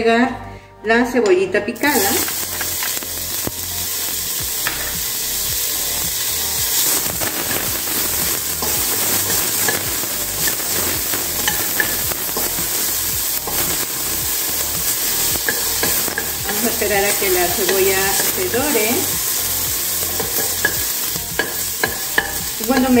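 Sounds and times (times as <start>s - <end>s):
onion sizzling in hot oil: 1.8s - 23.0s.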